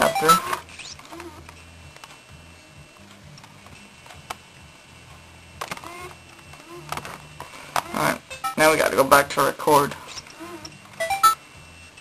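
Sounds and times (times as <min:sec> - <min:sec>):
low uneven hum: 0:00.0 - 0:12.0.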